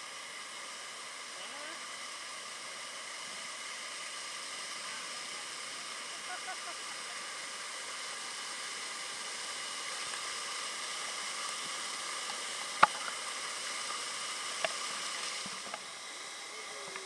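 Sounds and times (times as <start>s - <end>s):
waterfall splashing onto water: 3.9s - 17.0s.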